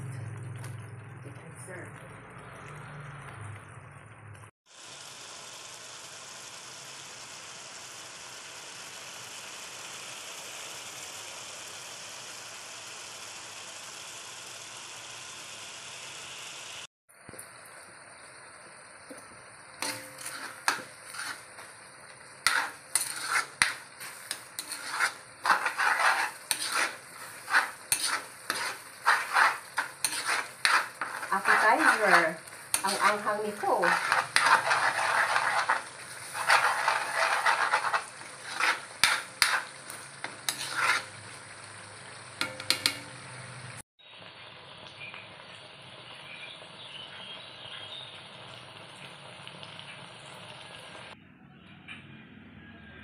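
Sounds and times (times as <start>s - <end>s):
liquid boiling hard in a wok: 0.0s - 51.2s
sizzle: 0.0s - 51.2s
metal spatula scraping a wok: 19.8s - 43.7s.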